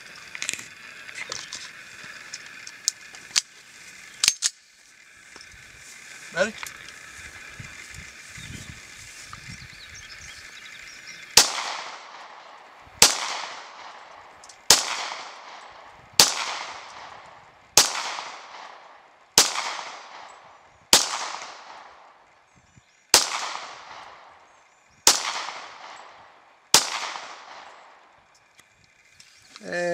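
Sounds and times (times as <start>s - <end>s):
pistol shots with echo: 11.4s - 14.0s, 14.7s - 17.2s, 17.8s - 18.8s, 19.4s - 20.3s, 20.9s - 21.9s, 23.1s - 24.3s, 25.0s - 28.0s.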